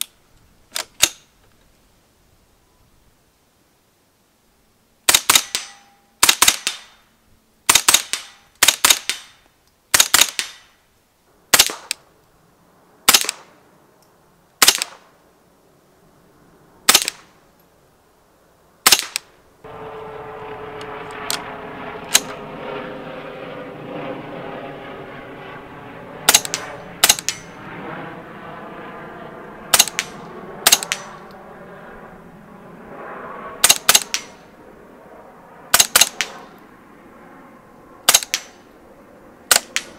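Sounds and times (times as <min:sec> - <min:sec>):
suppressed rifle shots: 0:05.1 - 0:07.0, 0:07.7 - 0:10.7, 0:11.5 - 0:12.0, 0:13.1 - 0:13.6, 0:14.6 - 0:15.1, 0:16.8 - 0:17.3, 0:18.8 - 0:19.3, 0:22.0 - 0:22.4, 0:26.2 - 0:27.6, 0:29.7 - 0:31.3, 0:33.6 - 0:34.5, 0:35.7 - 0:36.6, 0:38.0 - 0:38.7, 0:39.5 - 0:39.9.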